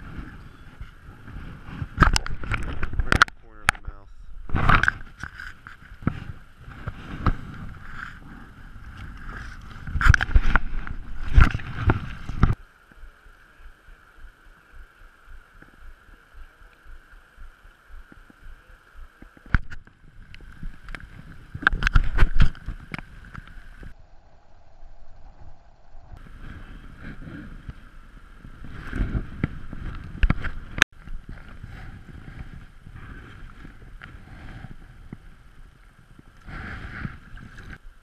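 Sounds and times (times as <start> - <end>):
flowing river water hiss: 4.0 - 38.0
knocks and rubbing against camera: 4.5 - 8.2, 9.3 - 12.6, 19.3 - 23.1.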